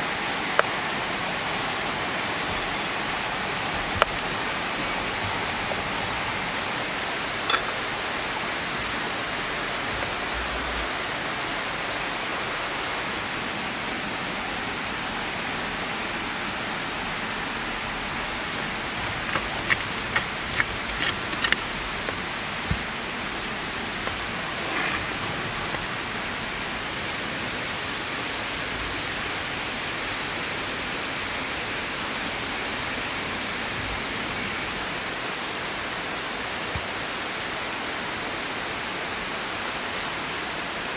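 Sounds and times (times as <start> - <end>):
fire rushing hiss: 0.0 - 11.2, 14.9 - 27.6
wood fire crackling: 0.4 - 10.7, 16.8 - 26.8.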